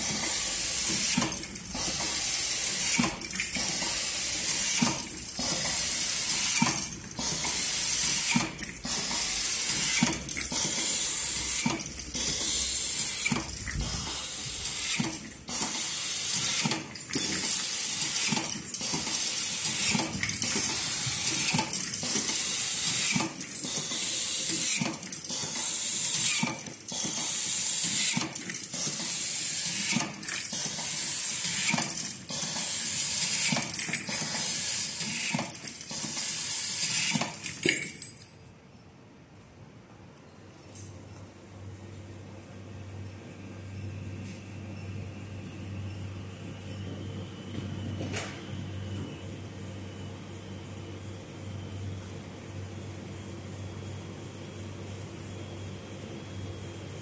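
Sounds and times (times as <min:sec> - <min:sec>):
machine clicks: 0:00.0 - 0:38.0.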